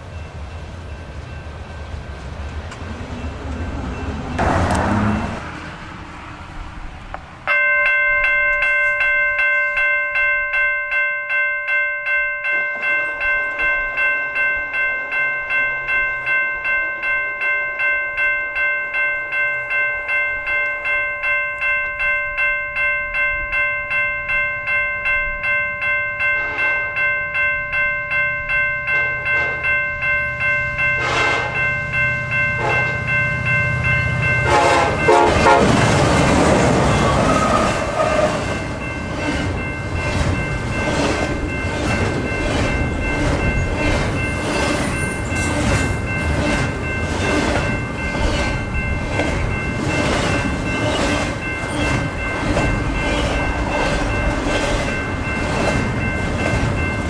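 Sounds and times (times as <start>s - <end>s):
railroad crossing bell ringing: 0.0s - 5.5s, 6.4s - 57.0s
freight train cars rumbling: 0.0s - 9.1s, 26.1s - 57.0s
distant train horn: 30.9s - 31.8s, 32.5s - 33.1s, 34.4s - 36.0s, 37.0s - 38.5s.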